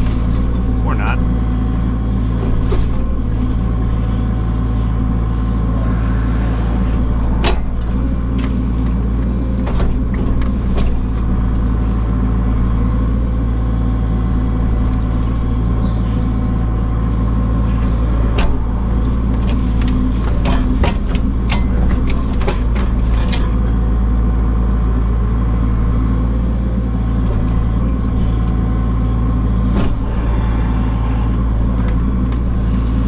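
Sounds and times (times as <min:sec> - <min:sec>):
machine engine running: 0:00.0 - 0:33.0.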